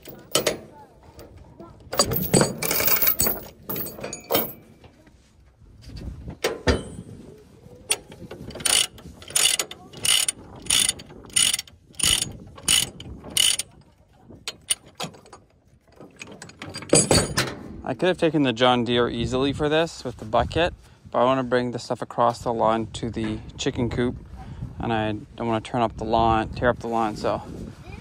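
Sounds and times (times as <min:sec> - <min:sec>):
chain rattling against metal: 0:00.0 - 0:04.7, 0:07.9 - 0:17.7
ratchet pawl clicking: 0:08.6 - 0:13.7.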